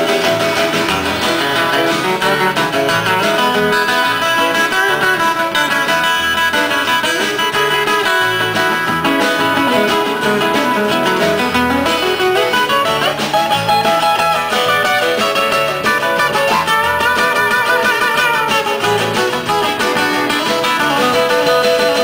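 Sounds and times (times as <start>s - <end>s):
live band playing: 0.0s - 22.0s
strummed acoustic guitars: 0.0s - 22.0s.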